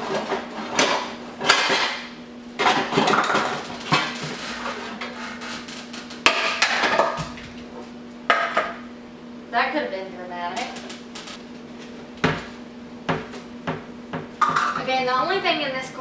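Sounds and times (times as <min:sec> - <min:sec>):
dishes clattering: 0:00.0 - 0:02.0, 0:02.6 - 0:05.1, 0:06.3 - 0:07.4, 0:14.2 - 0:15.0.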